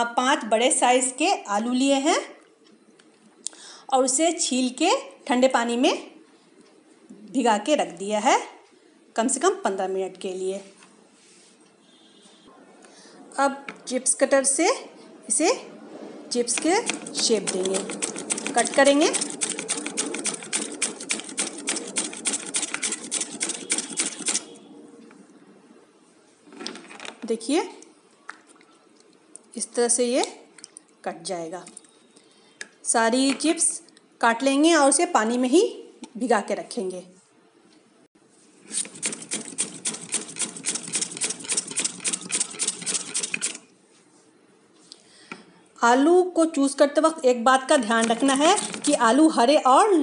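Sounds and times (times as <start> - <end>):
potato scraping on a grater: 16.5 - 24.5, 38.7 - 43.6, 47.8 - 49.4.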